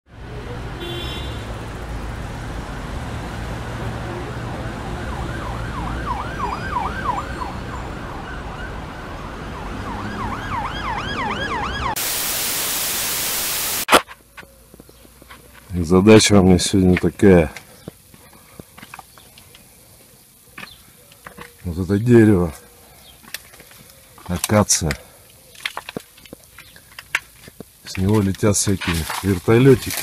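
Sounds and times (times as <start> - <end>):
city traffic rumble: 0.1 - 12.0, 13.8 - 30.0
emergency vehicle siren wailing: 3.6 - 12.1
television static hiss: 12.0 - 14.9.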